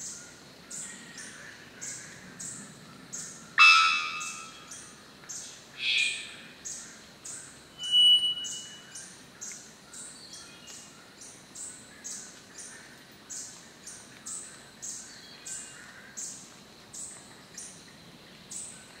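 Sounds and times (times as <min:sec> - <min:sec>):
bird calling with high whistle: 0:03.6 - 0:04.8, 0:07.8 - 0:09.0.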